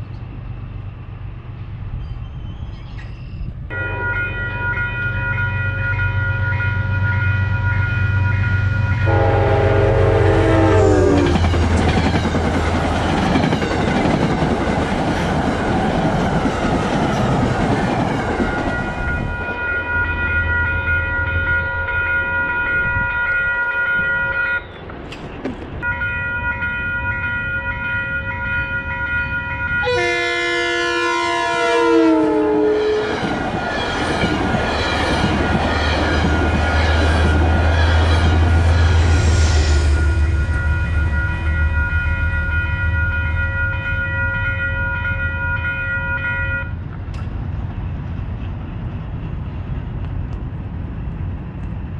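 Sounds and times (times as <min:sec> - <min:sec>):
locomotive rumbling: 0:00.0 - 0:25.9, 0:26.9 - 0:51.9
train horn: 0:03.7 - 0:11.8, 0:18.8 - 0:24.6, 0:29.2 - 0:33.4, 0:35.8 - 0:46.8
train wheels clattering on rails: 0:11.1 - 0:19.4, 0:33.0 - 0:38.8.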